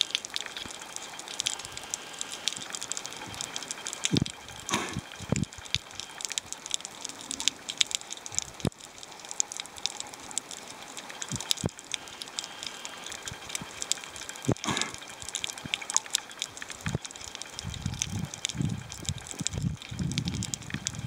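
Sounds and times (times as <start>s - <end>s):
underwater clicks and pops: 2.5s - 6.4s, 7.4s - 10.1s, 11.2s - 11.8s, 13.2s - 21.0s.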